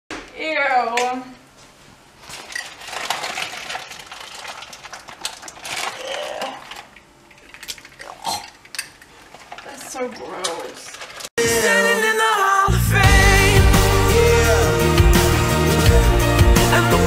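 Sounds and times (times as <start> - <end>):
plastic food container rustling: 2.2 - 6.9.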